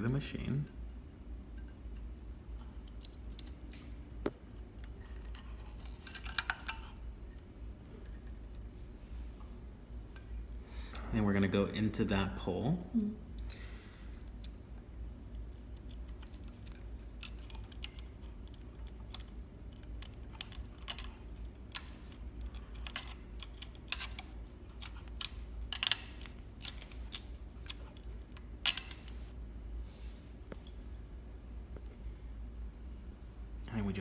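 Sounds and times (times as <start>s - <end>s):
small parts clicking and tapping: 0.0s - 8.6s, 13.3s - 14.6s, 15.3s - 29.4s
faint low hum: 0.0s - 34.0s.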